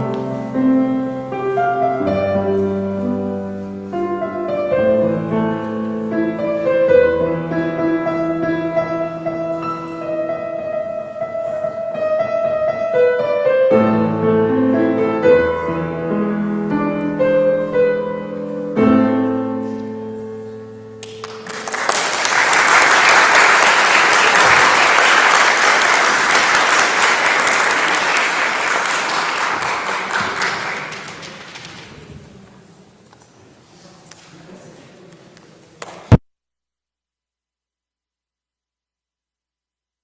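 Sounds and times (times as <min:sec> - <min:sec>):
grand piano playing: 0:00.0 - 0:31.0
audience applauding: 0:21.0 - 0:31.9.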